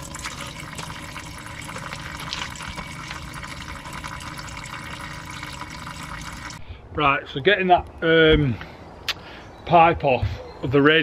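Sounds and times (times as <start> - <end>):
coolant stream splashing: 0.0 - 6.6.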